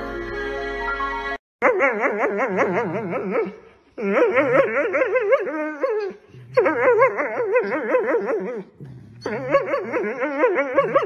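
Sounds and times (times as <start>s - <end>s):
dog whine-howling: 1.6s - 11.0s
dog growling: 2.3s - 11.0s.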